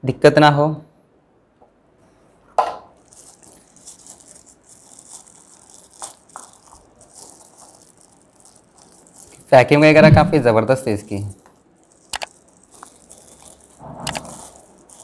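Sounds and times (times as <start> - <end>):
plastic wrapping crinkling: 2.9 - 10.0, 10.9 - 15.0.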